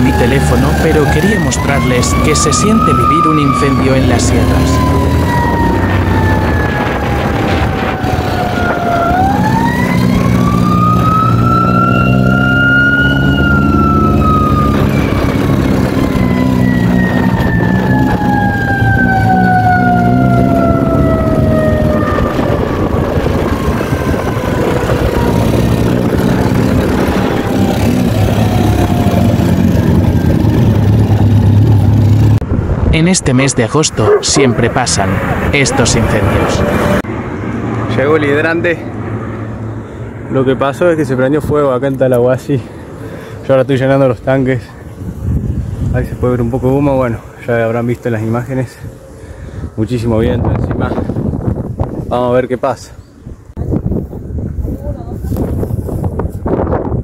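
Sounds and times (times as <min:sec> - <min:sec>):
fire truck siren wailing: 0:00.0 - 0:32.8, 0:33.8 - 0:40.2
motorcycle engine running: 0:23.5 - 0:32.4.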